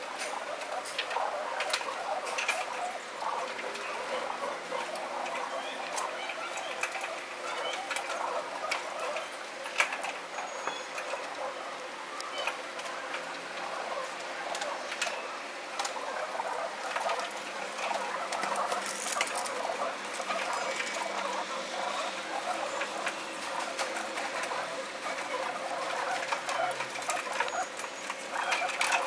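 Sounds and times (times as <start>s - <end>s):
pigeons cooing and scuffling: 0.0s - 29.0s
pigeons pecking on concrete: 0.0s - 29.0s.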